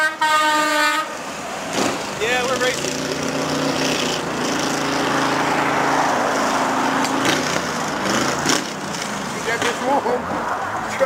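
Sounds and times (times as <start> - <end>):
exhaust and road noise: 0.0 - 11.0
car engine running: 1.8 - 10.2.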